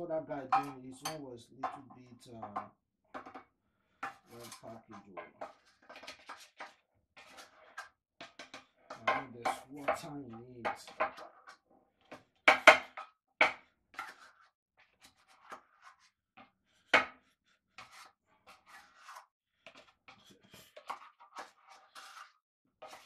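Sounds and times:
spatula scraping metal tin: 4.1 - 11.6, 13.9 - 16.1, 17.8 - 23.0.

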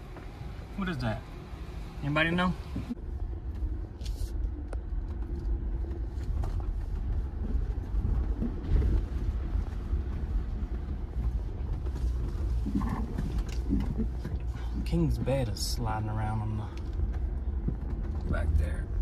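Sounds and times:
low engine rumble: 0.0 - 19.0
knocks and rattles: 5.1 - 19.0.

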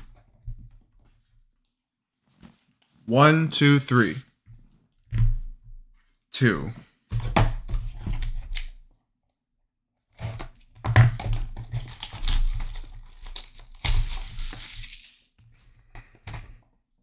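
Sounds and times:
plastic shrink wrap tearing: 11.3 - 15.4.

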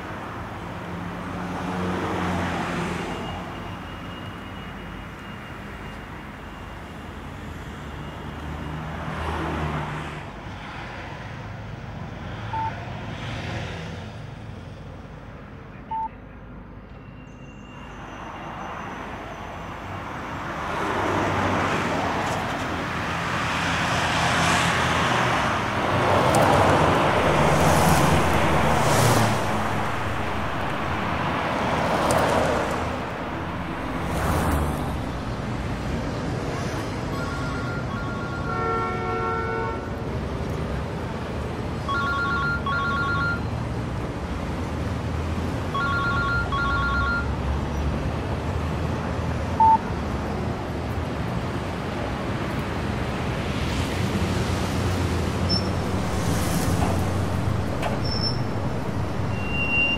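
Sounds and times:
cars going by: 0.0 - 59.9
short beeps: 12.5 - 12.8, 15.9 - 16.2, 37.1 - 38.5, 41.9 - 43.5, 45.8 - 47.3, 49.6 - 49.8, 55.4 - 59.9.

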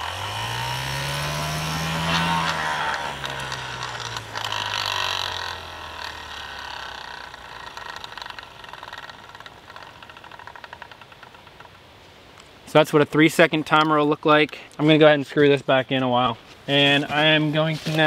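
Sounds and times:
spinner motor humming: 0.0 - 11.4
brief rustle: 16.5 - 18.0.

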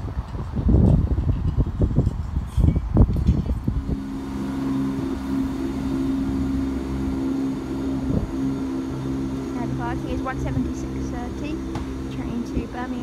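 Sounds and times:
wind gust on microphone: 0.0 - 13.0
train diesel engine humming: 3.6 - 13.0.

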